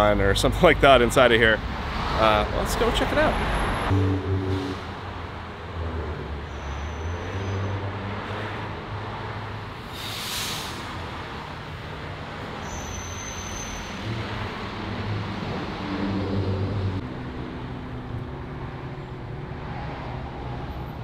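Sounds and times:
road traffic rumble: 0:00.0 - 0:21.0
brief hiss: 0:09.9 - 0:10.9.

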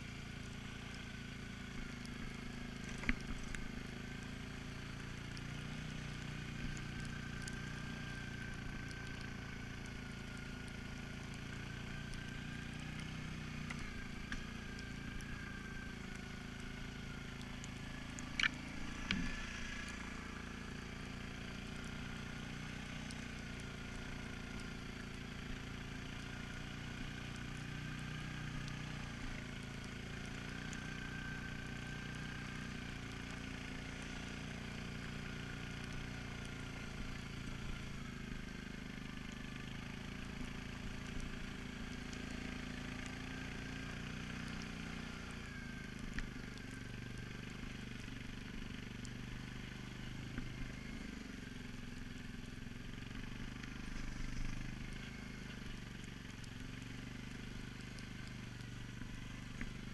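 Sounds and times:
atv engine running: 0:00.0 - 0:59.9
steady whine: 0:17.8 - 0:20.4.

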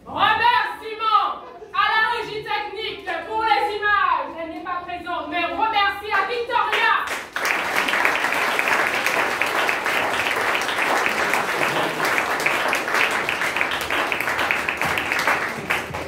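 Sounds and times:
audience applauding: 0:07.1 - 0:16.0.

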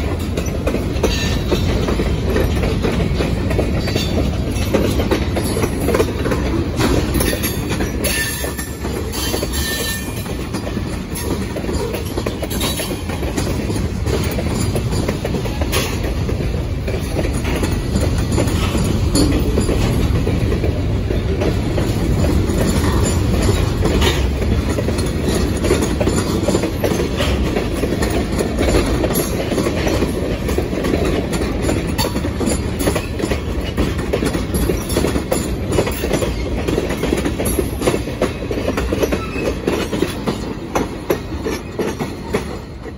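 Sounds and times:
freight train rumbling past: 0:00.0 - 0:42.9
steel wheels clacking on rails: 0:00.0 - 0:42.9.

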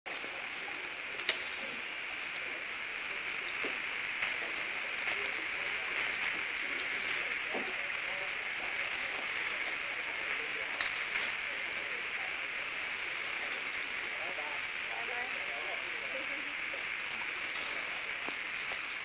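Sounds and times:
high-pitched insect drone: 0:00.1 - 0:19.0
faint voices: 0:13.3 - 0:18.5.

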